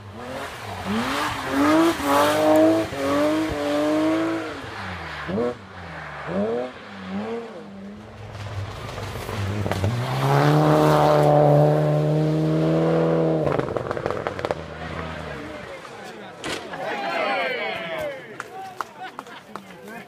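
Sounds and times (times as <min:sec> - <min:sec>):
rally car engine revving: 0:00.0 - 0:15.9
rally car passing at high revs: 0:00.0 - 0:16.0
exhaust crackles: 0:12.8 - 0:16.2.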